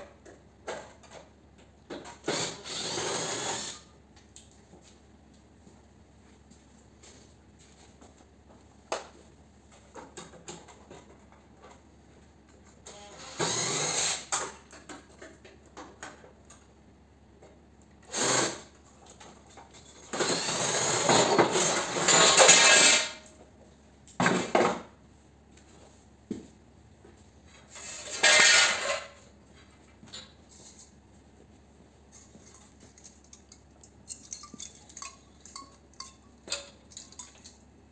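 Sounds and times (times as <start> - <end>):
cordless drill running: 2.3 - 3.8, 13.3 - 14.2, 18.1 - 18.6, 20.2 - 21.1.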